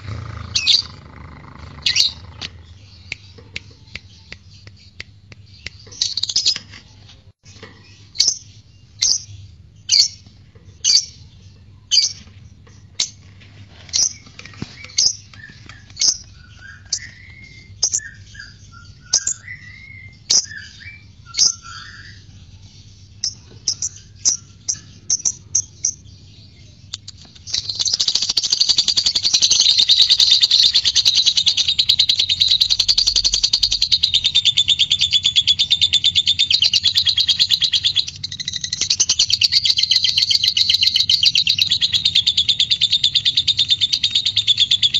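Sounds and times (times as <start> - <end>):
bird chattering trill: 0.0 - 6.5, 26.8 - 44.9
bird twittering: 0.0 - 6.6, 14.0 - 44.9
bird chirping: 0.0 - 44.9.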